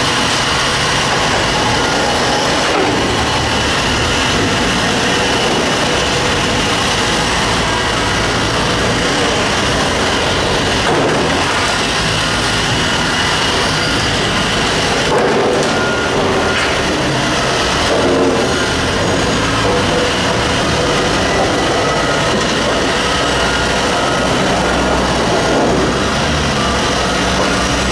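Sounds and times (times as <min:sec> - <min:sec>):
diesel engine running: 0:00.0 - 0:27.9.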